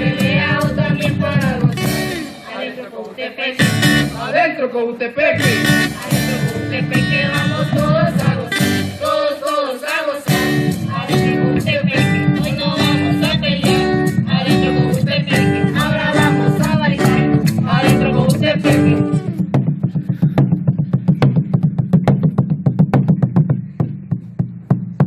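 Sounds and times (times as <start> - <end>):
drum and cymbal beat: 0.0 - 2.6, 5.4 - 25.0
group singing: 0.0 - 4.6, 5.3 - 19.4
strummed acoustic guitar: 3.6 - 4.4, 5.4 - 9.6, 10.3 - 20.5.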